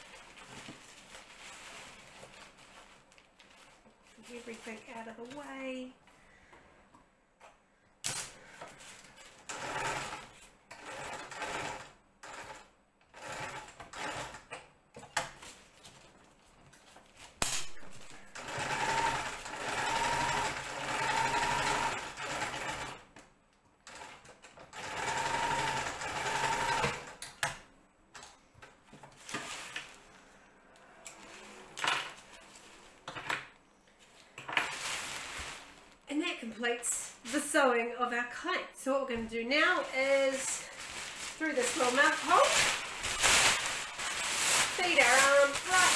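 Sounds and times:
sewing machine stitching: 0:09.4 - 0:14.5, 0:18.4 - 0:23.0, 0:23.9 - 0:27.2.

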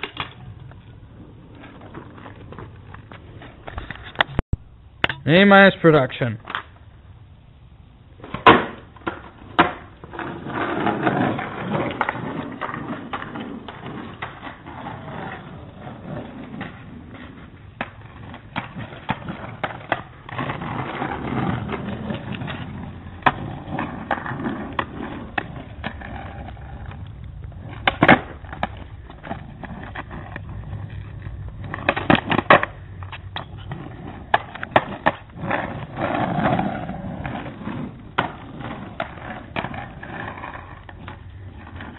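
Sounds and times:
small hard wheels rolling on pavement: 0:00.0 - 0:04.4, 0:06.4 - 0:41.9
skateboard landing slams: 0:08.2 - 0:09.9.

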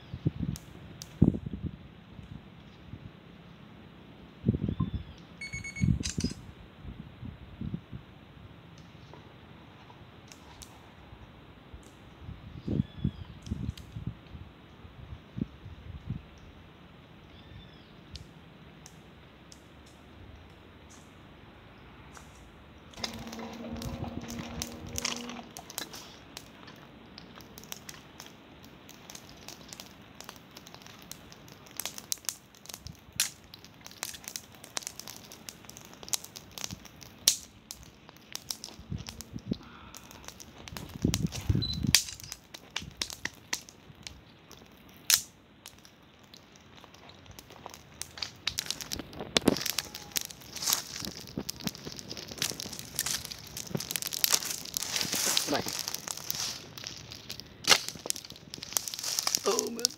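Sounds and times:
campfire crackling and popping: 0:00.0 - 0:04.2, 0:08.6 - 0:17.4, 0:18.0 - 0:59.9
dry leaves and sticks rustling: 0:22.1 - 0:59.9.

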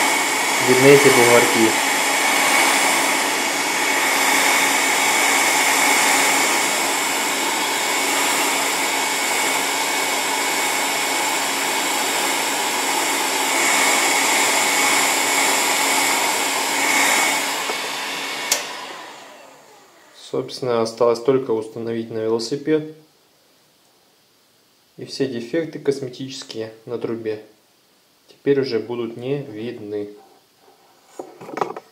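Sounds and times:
heat gun blowing: 0:00.0 - 0:20.2.

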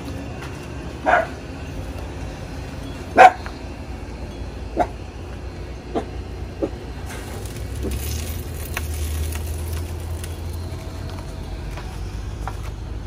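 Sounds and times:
dog barking: 0:01.0 - 0:01.4, 0:03.2 - 0:03.4.

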